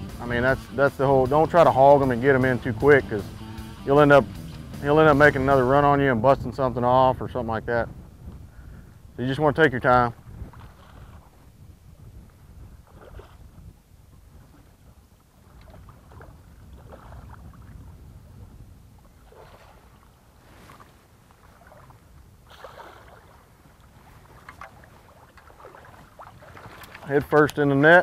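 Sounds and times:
low wind rumble: 0.0 - 28.0
water around a boat: 0.0 - 28.0
fish splashing at surface: 22.5 - 23.4.

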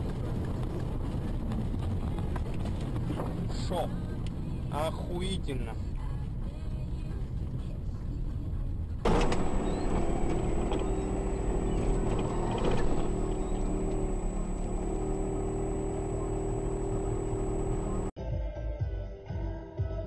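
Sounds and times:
road noise: 0.0 - 18.2
car engine: 8.9 - 18.2.

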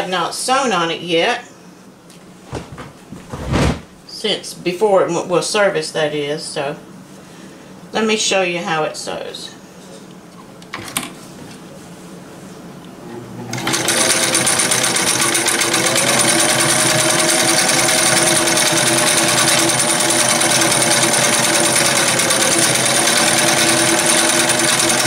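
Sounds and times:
sewing machine motor hum: 13.0 - 25.0.

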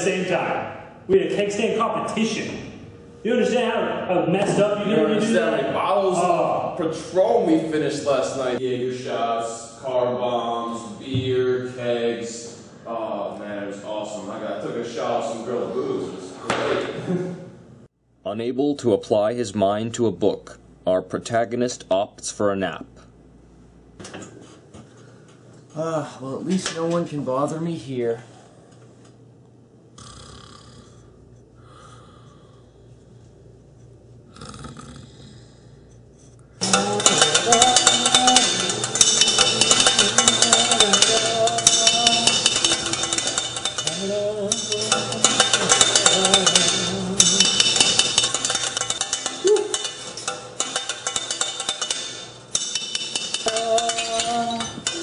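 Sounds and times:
man snoring: 30.0 - 31.1, 34.3 - 35.6
metal spoon scraping a steel pot: 35.9 - 55.0.

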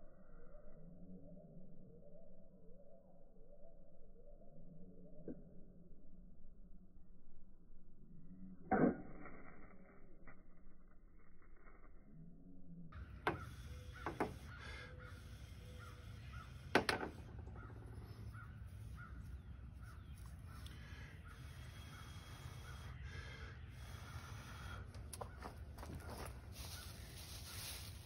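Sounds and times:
crows cawing: 13.1 - 27.8
sharp knocks: 13.2 - 14.5, 16.7 - 17.4.

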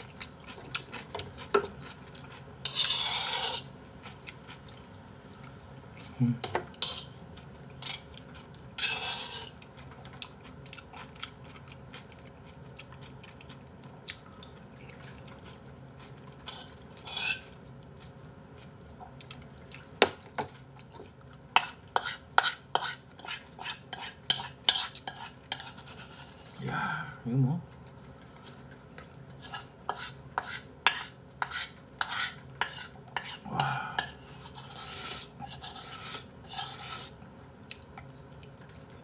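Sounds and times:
spoon scraping and clinking bowl: 2.6 - 3.7, 8.8 - 9.5, 16.4 - 17.5.

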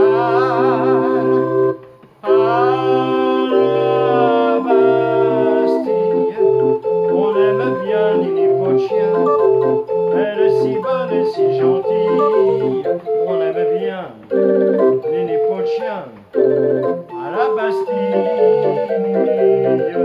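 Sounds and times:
barrel organ music: 0.0 - 20.0.

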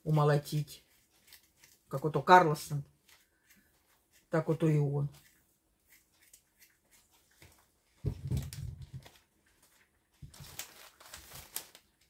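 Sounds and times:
knife peeling potato: 2.9 - 7.8
plastic bag crackling: 8.1 - 12.0.

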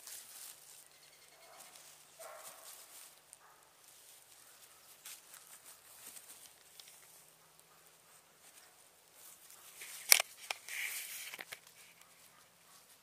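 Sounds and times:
hooves rustling in dry leaves: 0.0 - 13.0.

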